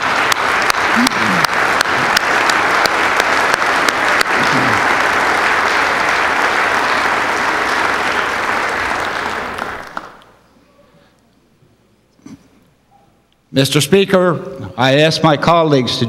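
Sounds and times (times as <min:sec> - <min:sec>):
crowd applauding: 0:00.0 - 0:10.4.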